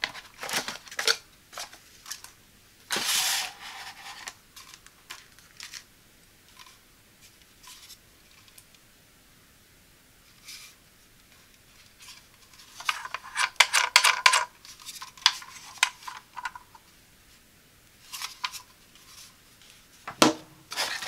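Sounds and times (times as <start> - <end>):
plastic bags rustling: 0.0 - 2.3, 20.7 - 21.0.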